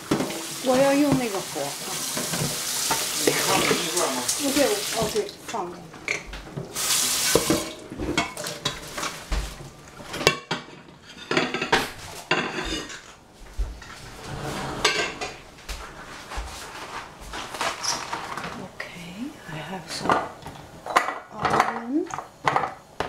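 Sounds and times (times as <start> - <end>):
pots and utensils clattering: 0.0 - 1.4, 2.0 - 13.2, 13.8 - 15.5, 20.0 - 22.9.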